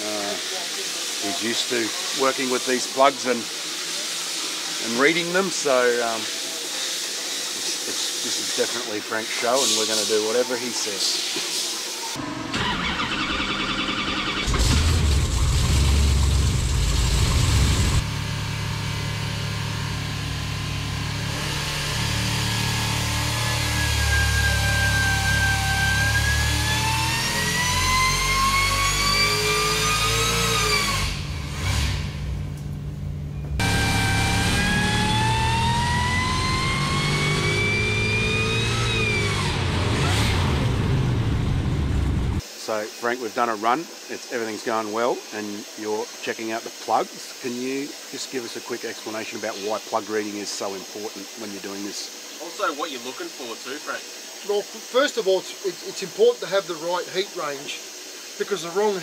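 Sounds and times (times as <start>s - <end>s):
supercharger whine: 12.1s - 42.5s
engine revving under load: 12.2s - 32.7s, 33.6s - 42.4s.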